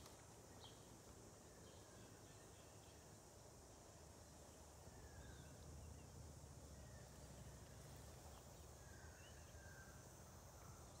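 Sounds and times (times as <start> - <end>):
faint bird chirps: 4.3 - 11.0.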